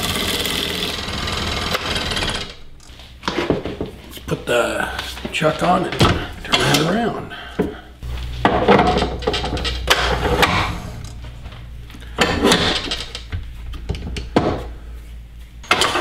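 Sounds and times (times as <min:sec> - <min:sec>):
low steady hum: 0:02.6 - 0:16.0
metal clicks and knocks: 0:08.4 - 0:11.2, 0:12.0 - 0:14.7.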